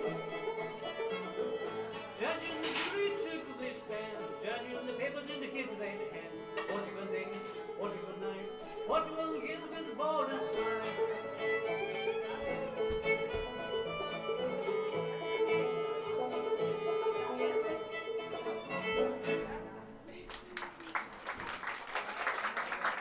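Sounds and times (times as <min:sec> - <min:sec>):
fiddle long note: 0:00.0 - 0:19.9
string band playing: 0:00.0 - 0:20.0
people clapping: 0:10.8 - 0:13.1, 0:20.1 - 0:23.0.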